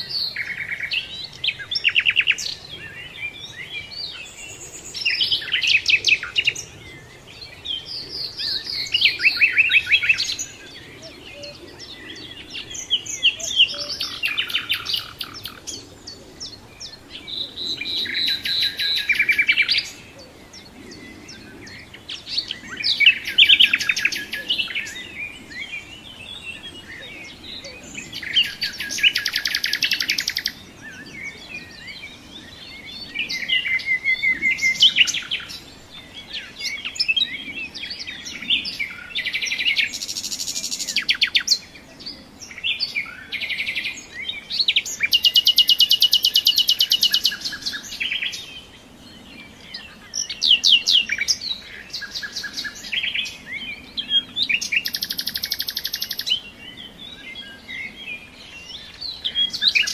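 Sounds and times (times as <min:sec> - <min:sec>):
songbirds trilling and warbling: 0:00.0 - 0:59.9.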